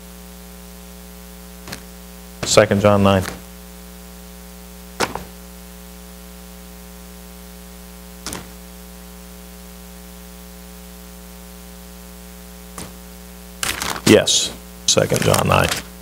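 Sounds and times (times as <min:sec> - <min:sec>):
electrical mains hum and hiss: 0:00.0 - 0:16.0
pages turning: 0:01.7 - 0:01.9, 0:12.8 - 0:13.0, 0:13.6 - 0:16.0
sharp click: 0:08.2 - 0:08.6.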